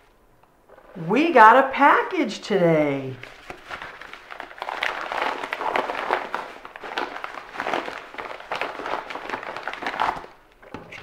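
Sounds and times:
paper mailer crinkling: 3.0s - 11.0s.

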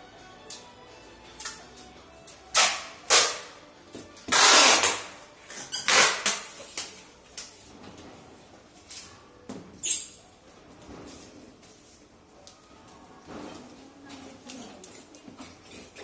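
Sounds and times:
packing tape ripping off roll: 2.5s - 3.6s, 4.2s - 7.6s.

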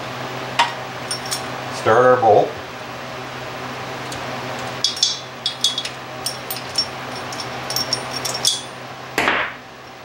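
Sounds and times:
metallic clicks and clinks: 4.8s - 8.8s.

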